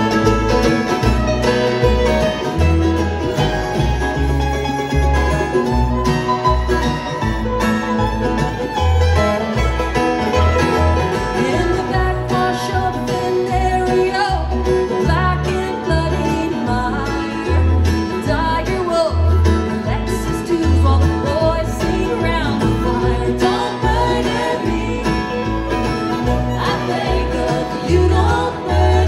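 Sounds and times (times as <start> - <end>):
bluegrass band playing: 0.0 - 29.0
woman singing: 11.4 - 29.0.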